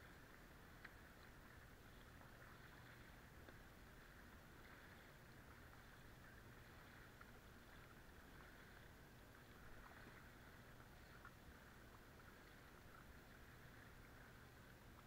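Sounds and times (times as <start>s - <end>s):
paddle dipping in water: 0.0s - 15.0s
water moving along hull: 0.0s - 15.0s
water drips ticking: 0.2s - 3.7s.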